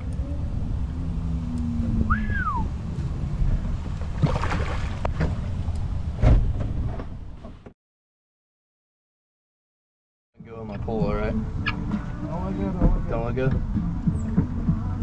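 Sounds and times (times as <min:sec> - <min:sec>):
short whistle-like call: 0:02.1 - 0:02.7
water lapping against kayak: 0:03.5 - 0:05.5.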